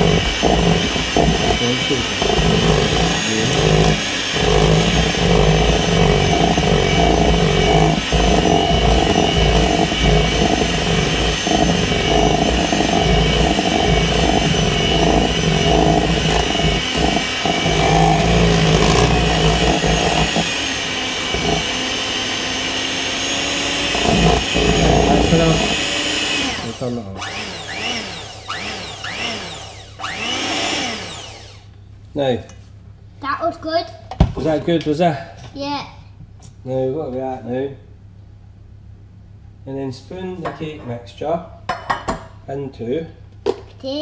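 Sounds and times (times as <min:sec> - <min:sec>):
electric hand mixer whirring: 0:00.0 - 0:31.7.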